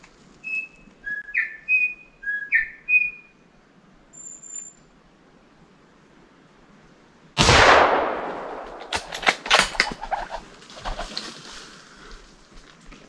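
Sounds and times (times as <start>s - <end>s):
rifle shot: 7.4s - 10.4s
sharp clicks: 7.7s - 11.2s.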